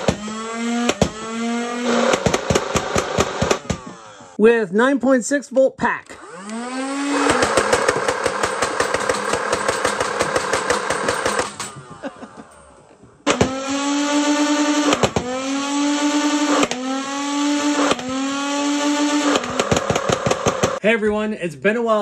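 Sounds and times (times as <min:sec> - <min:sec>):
blaster motor whine: 0:13.3 - 0:19.8.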